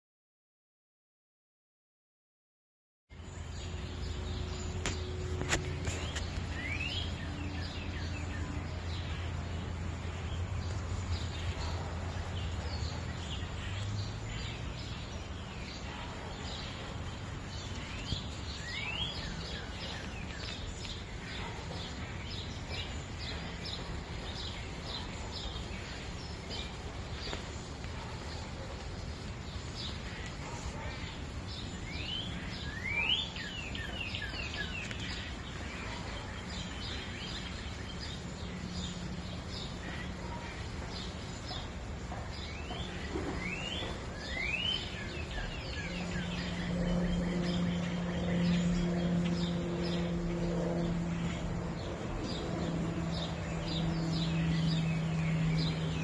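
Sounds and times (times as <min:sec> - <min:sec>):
birds chirping: 0:03.1 - 0:56.0.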